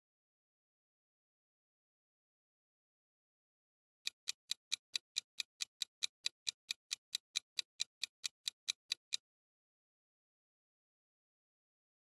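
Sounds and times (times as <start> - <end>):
clock ticking: 4.1 - 9.2.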